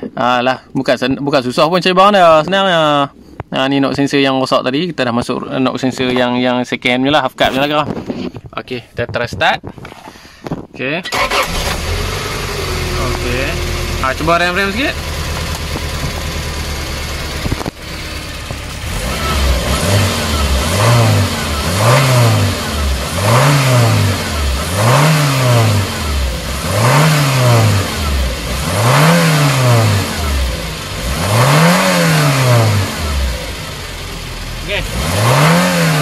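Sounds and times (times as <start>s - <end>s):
car engine idling and revving: 11.1s - 36.0s.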